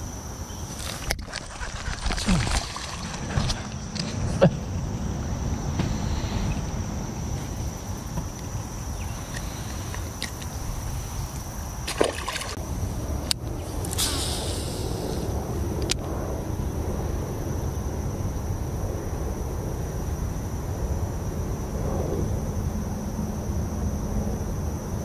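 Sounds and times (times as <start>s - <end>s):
fish splash: 0.8s - 3.7s, 11.8s - 12.6s
water sloshing against hull: 0.8s - 4.7s, 5.9s - 12.6s
steady low rumble: 1.7s - 11.9s, 12.5s - 25.0s.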